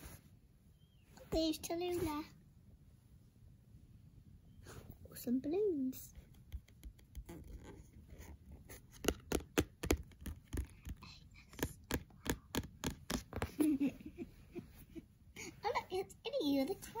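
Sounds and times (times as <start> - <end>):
fingers tapping cardboard pages: 6.2 - 7.8, 8.6 - 13.7.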